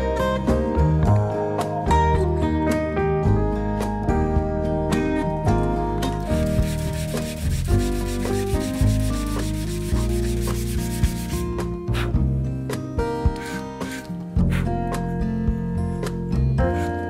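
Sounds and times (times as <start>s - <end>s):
background music: 0.0s - 17.0s
sanding block rubbing on wood: 6.2s - 11.7s.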